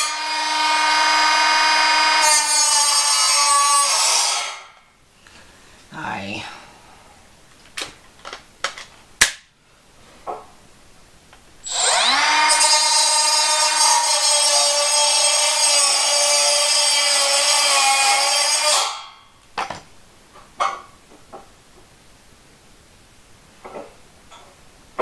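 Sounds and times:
power tool whining: 0:11.6 - 0:18.8.

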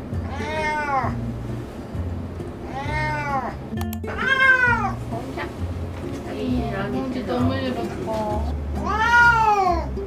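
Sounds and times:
background music: 0:00.0 - 0:10.0
cats yowling: 0:00.2 - 0:01.2, 0:02.6 - 0:05.0, 0:08.8 - 0:10.0.

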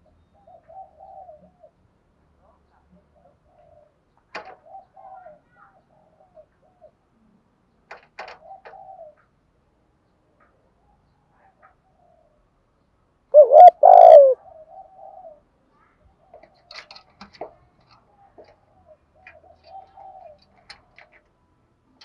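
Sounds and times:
dove cooing: 0:00.4 - 0:01.7, 0:03.2 - 0:05.4, 0:08.4 - 0:09.2, 0:13.4 - 0:15.4, 0:18.8 - 0:21.1.

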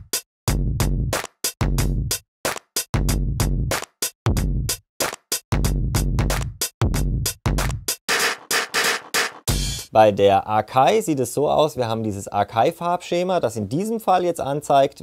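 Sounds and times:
deep bass drum: 0:00.5 - 0:02.1, 0:03.0 - 0:03.7, 0:04.3 - 0:04.8, 0:05.5 - 0:07.9, 0:09.5 - 0:09.8
higher drum hits: 0:07.6 - 0:09.9.

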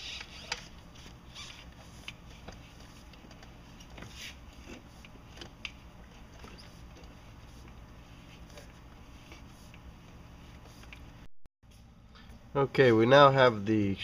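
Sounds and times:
scraping rubbing sounds: 0:00.0 - 0:11.1.

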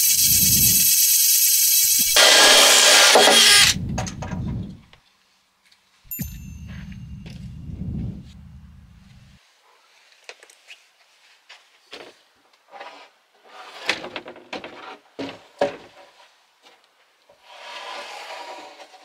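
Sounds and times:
worktop scraping along cabinets: 0:17.4 - 0:19.0.

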